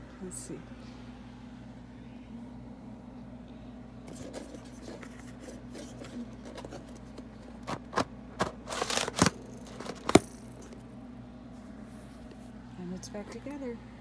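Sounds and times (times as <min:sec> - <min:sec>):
light plastic rustling: 0:04.1 - 0:10.4.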